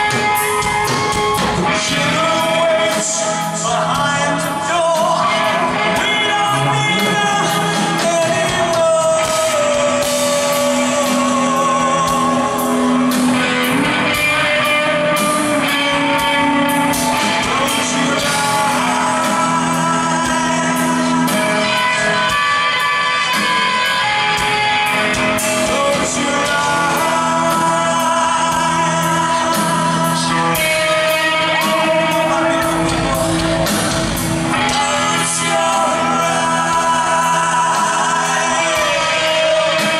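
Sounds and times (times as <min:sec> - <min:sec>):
drums: 0:00.0 - 0:39.9
electric guitar: 0:00.0 - 0:39.9
man singing: 0:00.0 - 0:39.9.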